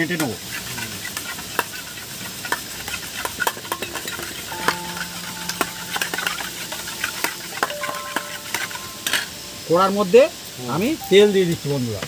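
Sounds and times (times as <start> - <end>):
spatula clicking on metal bowl: 0.5 - 4.9.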